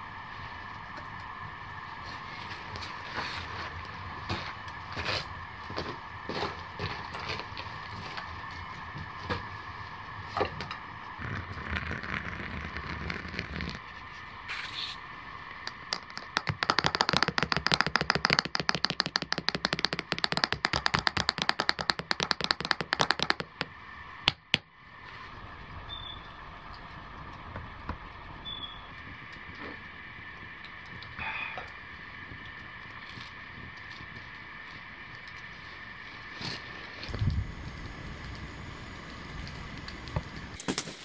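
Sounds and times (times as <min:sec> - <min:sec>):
campfire crackling: 0:00.2 - 0:24.6, 0:26.6 - 0:41.0
spoon tapping mug: 0:15.7 - 0:23.7.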